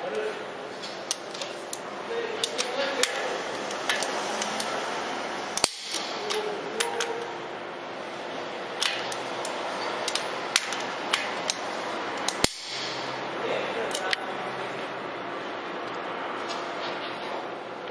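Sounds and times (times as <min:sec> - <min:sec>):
steady background noise: 0:00.0 - 0:17.9
ratchet wrench clicking: 0:02.4 - 0:04.8, 0:08.8 - 0:12.8.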